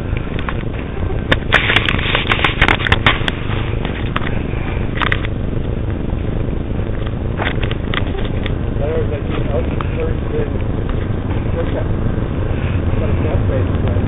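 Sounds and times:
footsteps crackling over dry twigs: 0.0 - 8.6
steady low rumble: 0.0 - 14.0.

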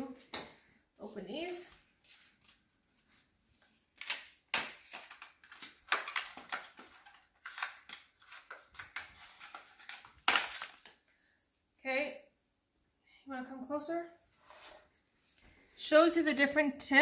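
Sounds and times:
plastic packaging crinkling: 4.0 - 11.1.

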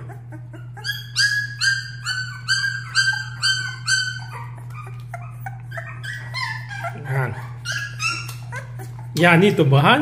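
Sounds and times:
puppies crying: 0.0 - 10.0.

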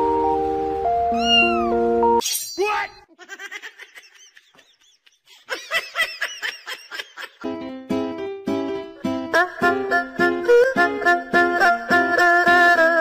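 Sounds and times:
background music: 0.0 - 2.2, 7.4 - 13.0
short falling squeal: 1.1 - 1.8
plucked-string music: 7.5 - 13.0.

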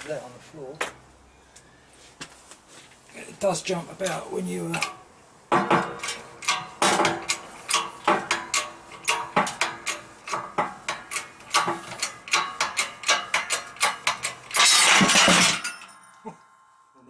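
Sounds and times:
hydraulic press metallic clacks: 5.6 - 15.9
metal breaking with crack: 5.8 - 16.1.

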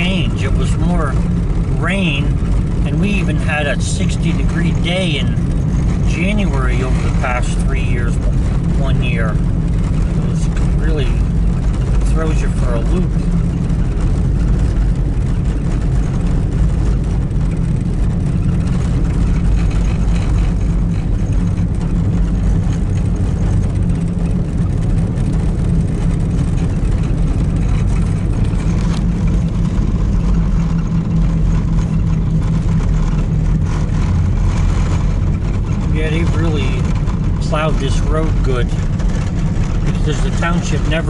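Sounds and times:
engine and tyre rumble: 0.0 - 41.0.

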